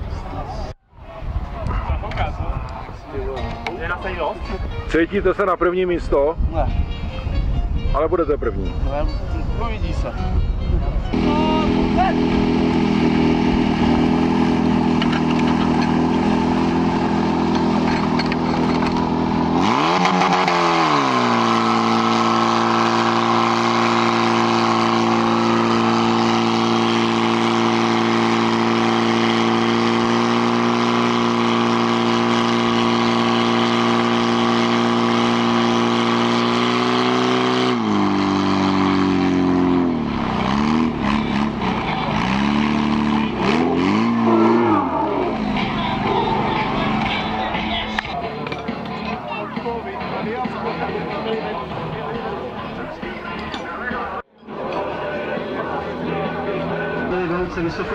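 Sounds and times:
fire pump engine: 11.1 - 49.0.

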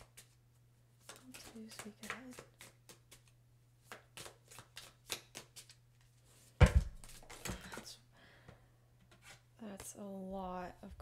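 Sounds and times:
cards being shuffled: 0.0 - 0.4, 1.0 - 6.2.

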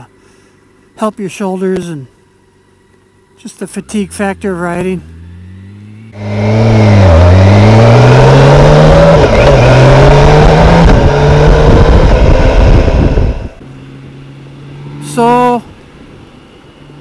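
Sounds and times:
motorcycle engine accelerating: 3.8 - 17.0
wind rush on microphone: 9.0 - 13.6.

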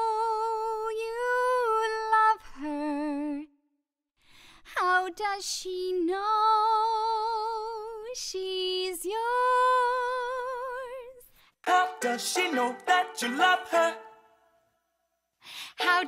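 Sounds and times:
singer breathing: 4.2 - 4.7, 15.4 - 15.8
woman singing with vibrato: 4.8 - 14.3, 15.6 - 16.0.

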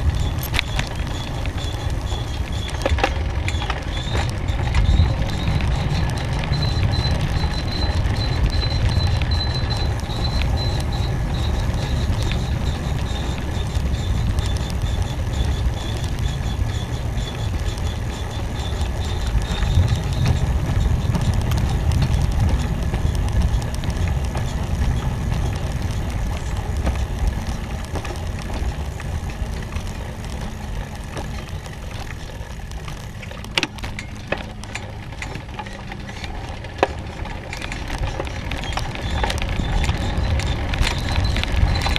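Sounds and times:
wind buffeting microphone: 0.0 - 41.9.

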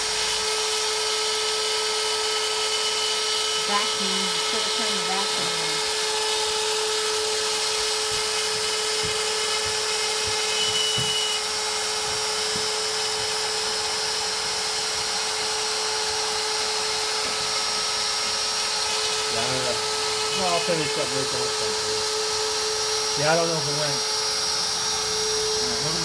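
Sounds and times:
router spindle whine: 0.0 - 26.0
high-pitched squeal: 19.2 - 26.0.

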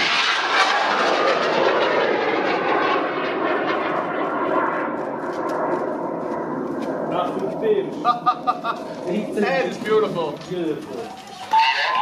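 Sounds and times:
rocket motor roaring: 0.0 - 4.2.

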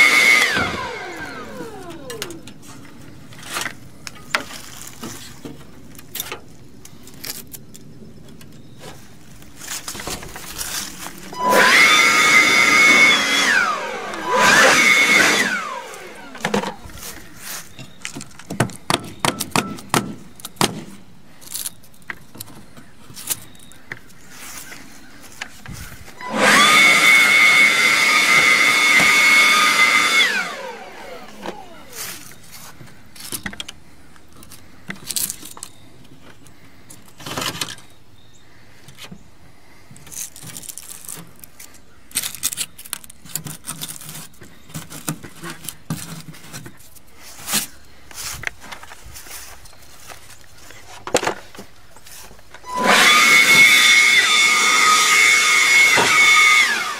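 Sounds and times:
small electric motor whine: 0.0 - 3.0, 11.3 - 17.8, 26.0 - 33.3, 52.6 - 56.9
hands clicking and knocking on plastic: 17.8 - 21.0.

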